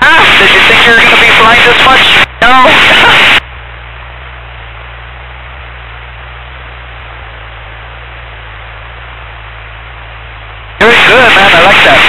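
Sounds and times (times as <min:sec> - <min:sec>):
intercom hiss: 0:00.0 - 0:03.4, 0:10.8 - 0:12.0
low hum: 0:00.0 - 0:12.0.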